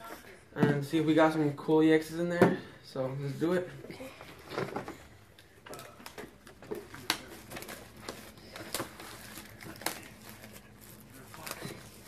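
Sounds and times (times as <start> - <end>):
plastic shrink-wrap crinkling: 5.7 - 12.0.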